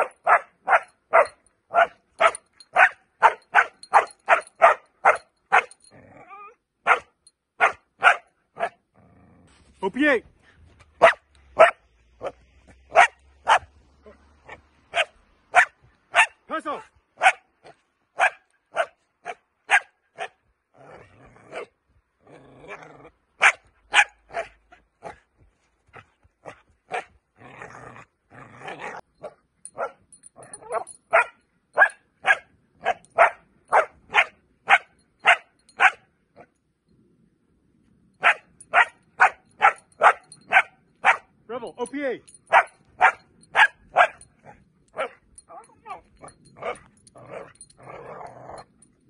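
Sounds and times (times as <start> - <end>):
puppy barking: 0.0 - 5.7, 6.8 - 8.8, 11.0 - 16.4, 17.2 - 20.4, 23.4 - 25.2, 26.5 - 27.1, 30.6 - 36.5, 38.2 - 41.3, 42.5 - 46.0.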